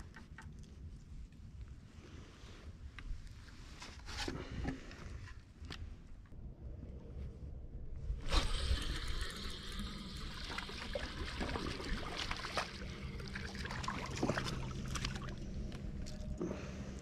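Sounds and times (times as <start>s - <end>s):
low steady hum: 0.0s - 17.0s
water splashing and trickling: 8.2s - 17.0s.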